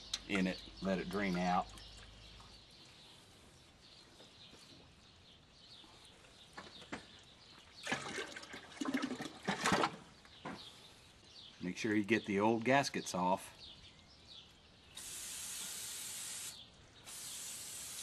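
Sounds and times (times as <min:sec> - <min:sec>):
oil dripping into bucket: 0:07.8 - 0:10.1
splashing and clatter: 0:07.8 - 0:10.1.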